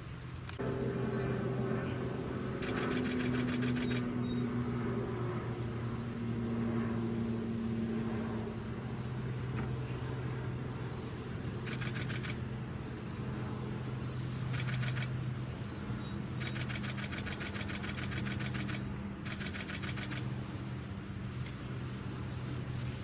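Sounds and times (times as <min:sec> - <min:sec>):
steady low hum: 0:00.0 - 0:23.0
camera shutter rapid bursts: 0:02.6 - 0:04.1, 0:11.6 - 0:12.4, 0:14.4 - 0:15.2, 0:16.3 - 0:20.3.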